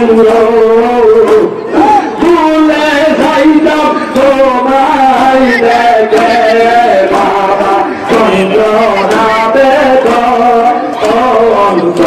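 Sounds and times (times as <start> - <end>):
men chanting melodically: 0.0 - 12.0.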